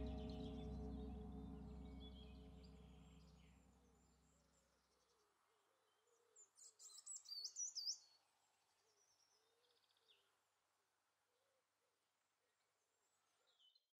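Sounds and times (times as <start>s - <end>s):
gong ringing: 0.0s - 3.5s
songbird singing: 0.0s - 3.6s, 6.6s - 8.2s.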